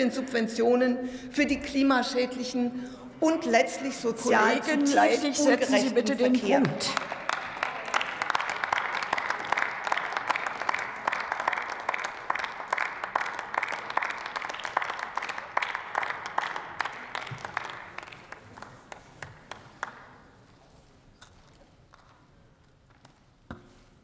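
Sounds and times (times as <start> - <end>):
applause: 4.4 - 20.6, 21.3 - 22.3.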